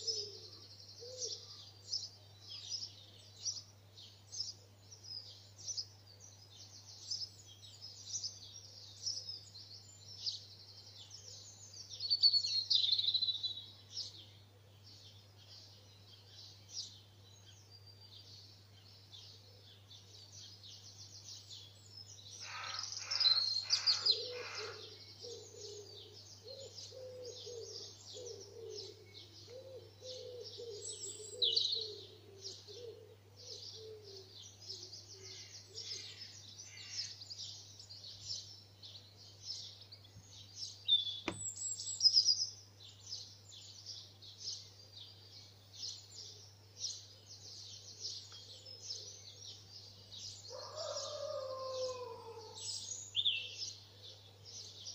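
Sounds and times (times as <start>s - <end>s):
songbirds chirping and trilling: 0.0s - 54.9s
low repeated bird call: 22.4s - 37.4s
sharp click: 41.3s - 41.5s.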